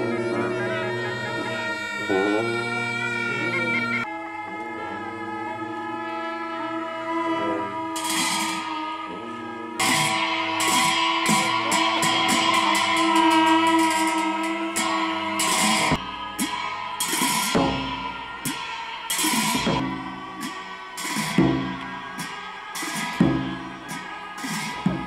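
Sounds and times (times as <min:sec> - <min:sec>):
long horns and shawms: 0:00.0 - 0:25.0
cymbals clashing: 0:04.8 - 0:25.0.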